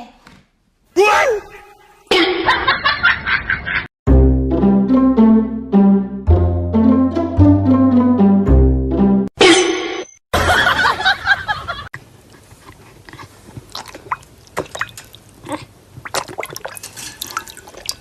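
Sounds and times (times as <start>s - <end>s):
dog lapping water from bowl: 13.6s - 18.0s.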